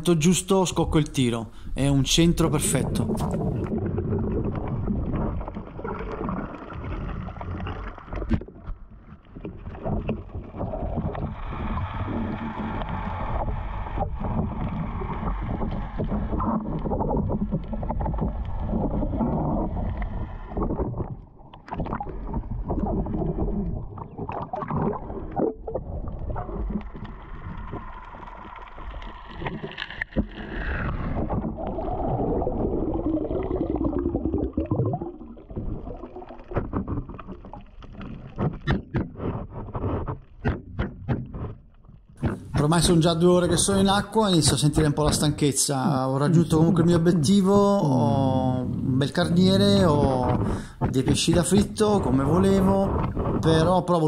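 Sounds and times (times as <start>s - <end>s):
water sloshing and gurgling: 0.9s - 45.3s, 46.3s - 54.0s.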